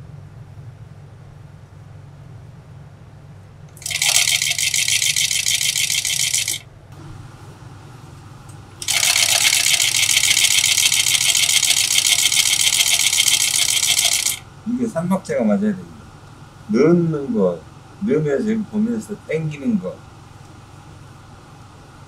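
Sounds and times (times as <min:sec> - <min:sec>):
sewing machine rattling: 0:03.8 - 0:06.6, 0:08.8 - 0:14.4.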